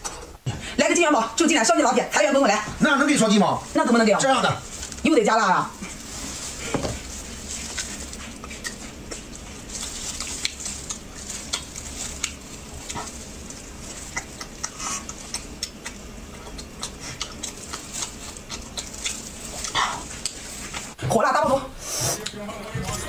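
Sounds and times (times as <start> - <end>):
chewing seafood: 4.6 - 21.0.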